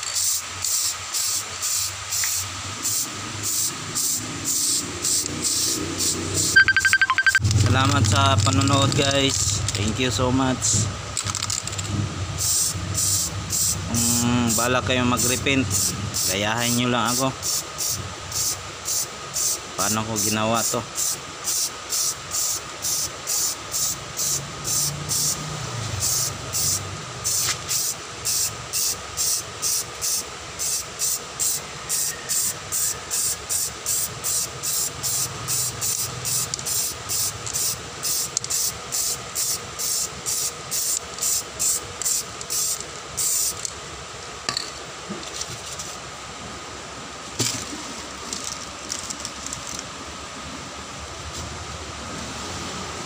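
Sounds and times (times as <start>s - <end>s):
aerosol spray can hissing: 0.0s - 6.6s, 11.3s - 16.4s, 17.1s - 19.6s, 21.0s - 25.4s, 26.0s - 43.7s.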